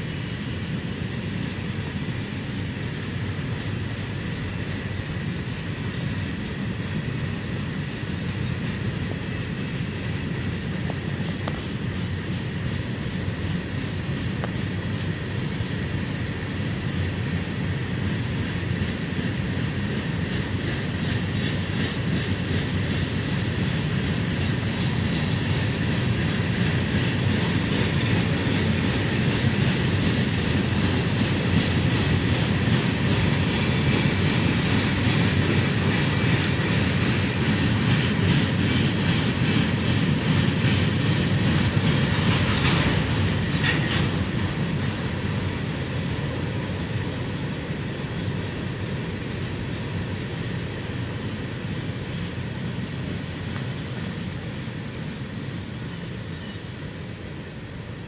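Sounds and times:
steel wheels rumbling on rail: 0.0 - 58.0
wheel squeal: 42.1 - 42.6.

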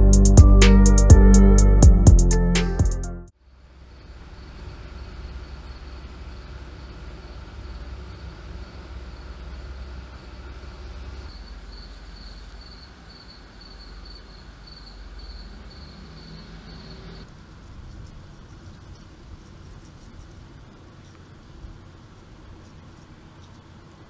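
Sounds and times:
low steady rumble: 3.5 - 15.7
cricket chirping: 3.8 - 24.0.

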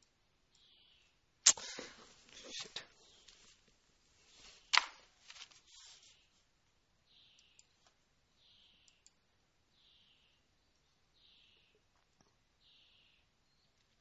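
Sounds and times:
sharp click: 1.4 - 1.7
small ticks: 7.3 - 8.0, 8.6 - 9.2.

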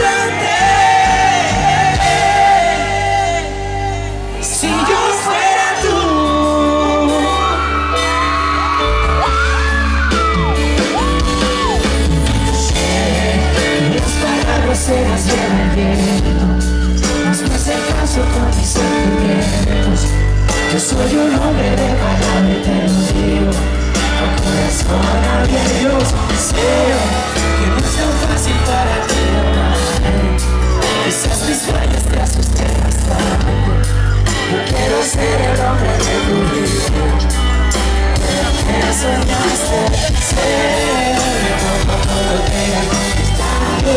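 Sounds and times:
bass: 0.0 - 43.9
drums: 0.0 - 43.9
electric guitar: 0.0 - 43.9
man singing: 0.0 - 43.9.

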